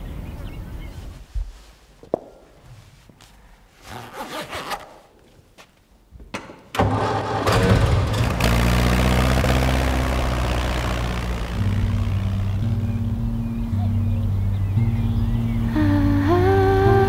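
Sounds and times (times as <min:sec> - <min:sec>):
soft rustles and knocks: 0:00.9 - 0:03.9
tractor engine starting and running: 0:06.7 - 0:17.0.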